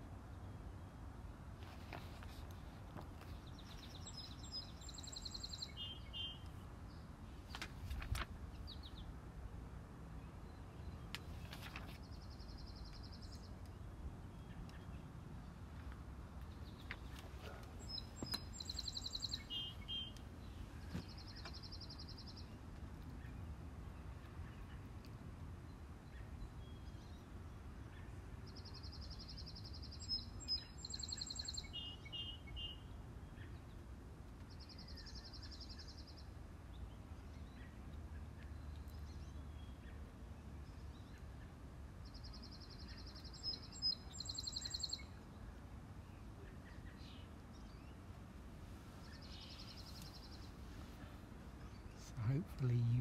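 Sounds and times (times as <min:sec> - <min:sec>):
songbirds trilling: 0:01.7 - 0:07.7, 0:16.4 - 0:48.2, 0:48.9 - 0:53.0.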